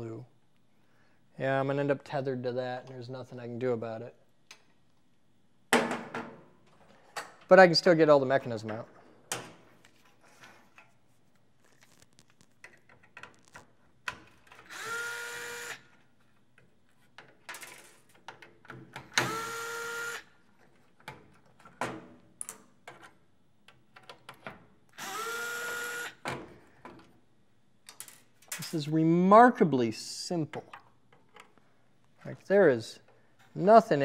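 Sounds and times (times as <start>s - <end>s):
electric screwdriver motor whining: 14.6s - 15.8s, 19.2s - 20.3s, 25.0s - 26.2s.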